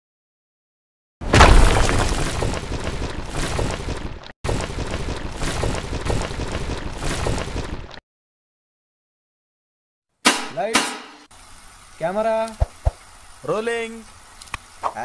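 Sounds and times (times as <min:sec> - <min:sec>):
wall crashing: 0:01.2 - 0:03.8
rumbling hissing debris: 0:01.2 - 0:07.2, 0:11.3 - 0:15.0.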